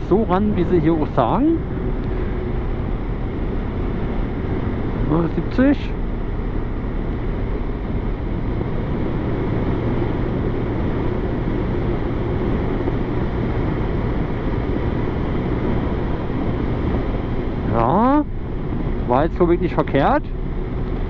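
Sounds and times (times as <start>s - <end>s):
motorcycle engine running: 0.0s - 19.2s
wind rushing over microphone: 0.0s - 21.0s.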